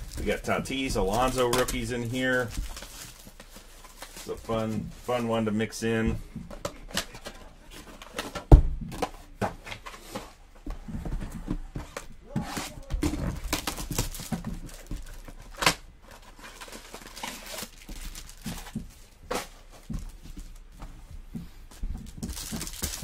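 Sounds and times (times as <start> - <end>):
crinkling plastic wrap: 0.0 - 5.5, 13.1 - 20.7, 22.0 - 23.0.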